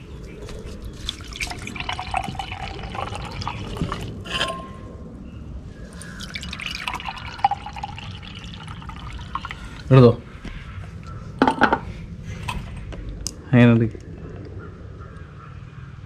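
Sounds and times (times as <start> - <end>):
lemonade pouring and fizzing: 0.9 - 4.2, 6.0 - 9.9.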